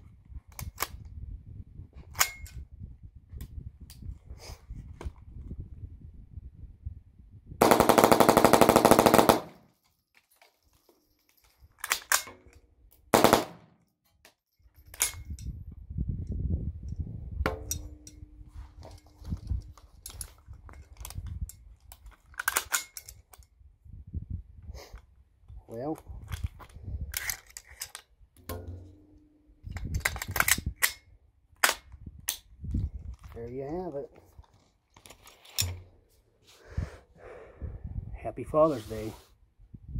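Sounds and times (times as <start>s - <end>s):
rifle shots: 7.6s - 9.6s, 13.1s - 13.8s.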